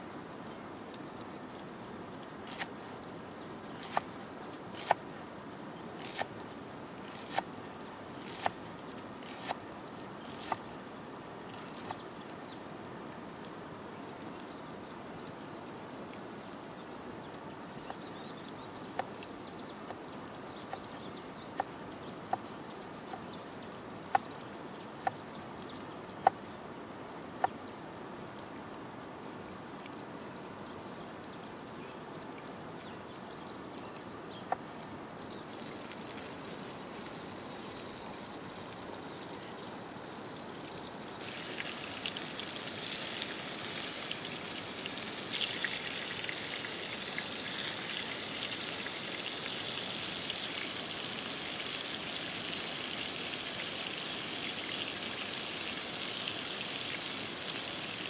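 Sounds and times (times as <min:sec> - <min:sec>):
burger patties sizzling in pan: 0:35.3 - 0:58.0.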